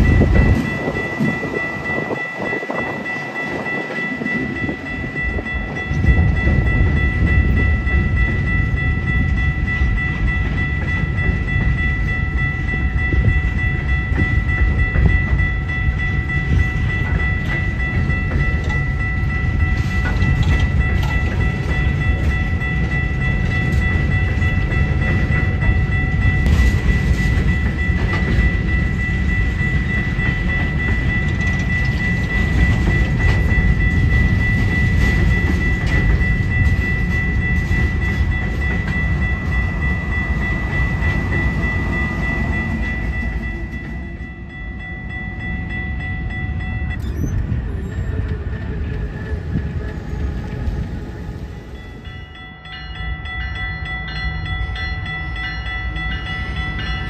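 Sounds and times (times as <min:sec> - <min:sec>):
high-pitched ring: 0:00.0 - 0:48.2, 0:50.0 - 0:57.0
rail clicks: 0:00.0 - 0:57.0
train wheels rumbling on rail: 0:00.0 - 0:57.0.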